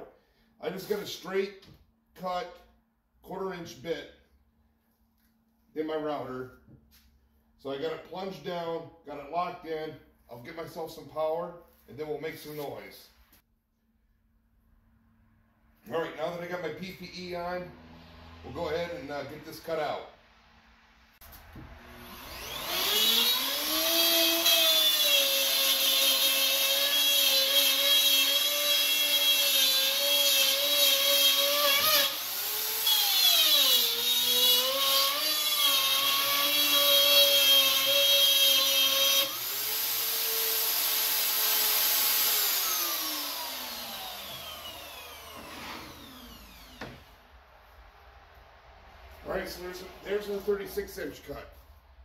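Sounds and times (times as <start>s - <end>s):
router motor winding down: 21.7s - 29.2s, 29.8s - 47.1s
router cutting plywood: 21.8s - 47.0s.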